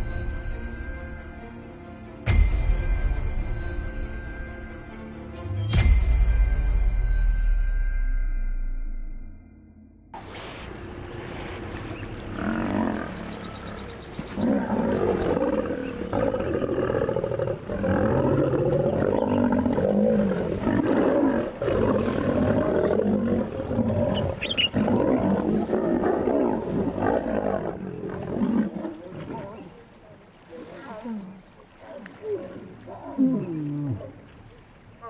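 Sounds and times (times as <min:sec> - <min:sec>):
lionesses growling: 0:10.2 - 0:34.5.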